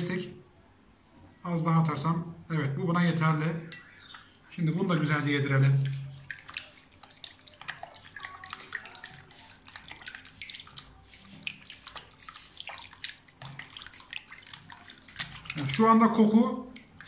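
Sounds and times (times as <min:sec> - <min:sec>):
hands squelching in marinade: 0:05.2 - 0:16.0, 0:16.6 - 0:17.0.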